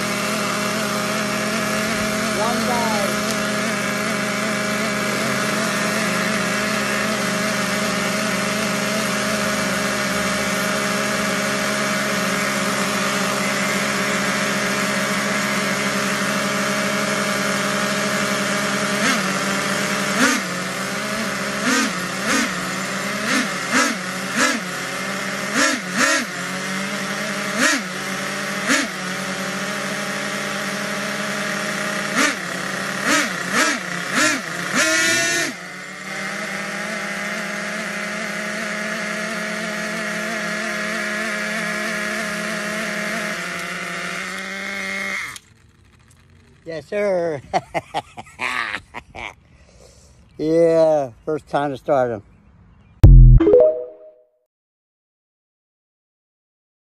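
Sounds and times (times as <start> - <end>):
engine throttle blips: 0.0 - 32.4, 53.0 - 54.2
nitro engines buzzing: 0.0 - 46.6.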